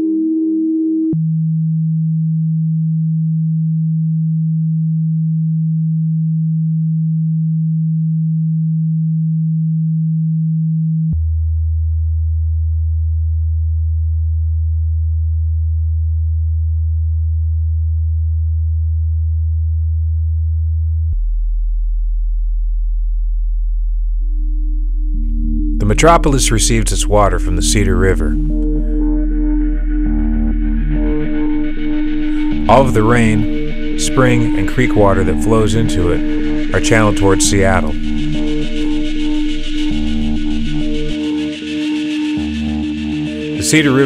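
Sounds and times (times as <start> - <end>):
low electronic drone tone: 13.1 - 44.0.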